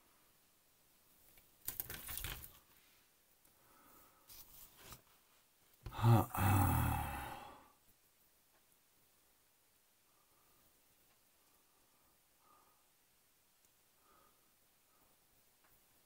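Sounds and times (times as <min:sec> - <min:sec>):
plastic frame rattling over paper: 0:01.6 - 0:02.6.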